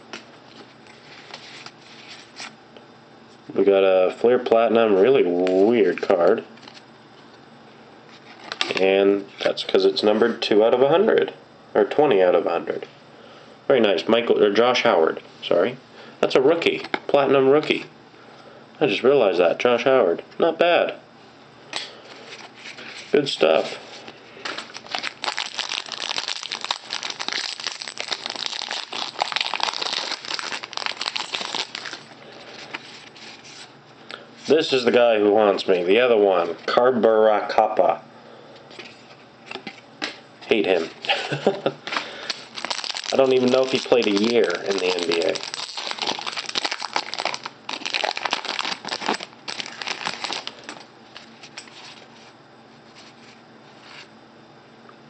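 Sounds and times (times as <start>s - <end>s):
foil wrapper crinkling: 24.4s - 33.7s, 41.4s - 52.1s.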